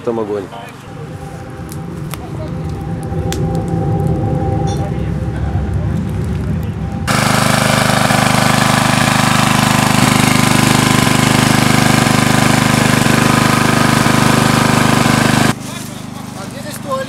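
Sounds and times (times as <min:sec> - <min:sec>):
generator engine running: 0:00.0 - 0:17.0.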